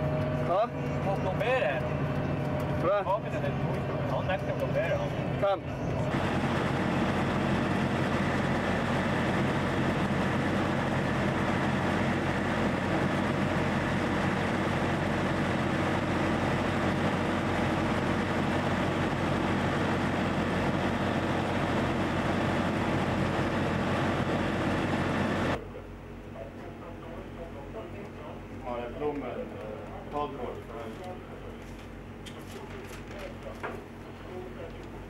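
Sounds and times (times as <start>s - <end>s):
truck diesel engine idling: 0.0s - 25.6s.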